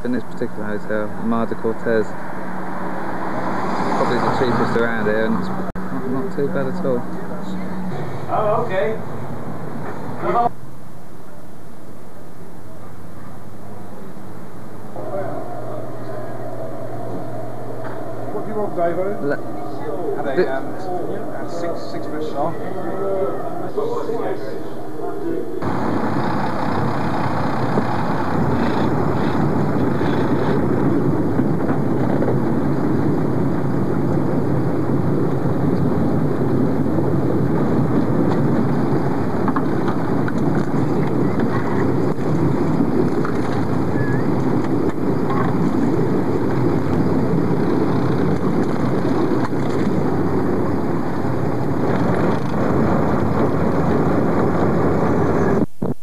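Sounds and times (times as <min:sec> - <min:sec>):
boat engine drone: 0:00.0 - 0:55.7
wind on microphone: 0:25.6 - 0:56.0.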